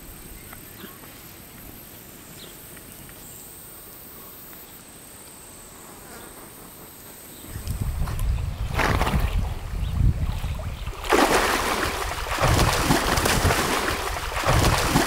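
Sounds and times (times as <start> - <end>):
insect chorus drone: 0.0 - 8.7.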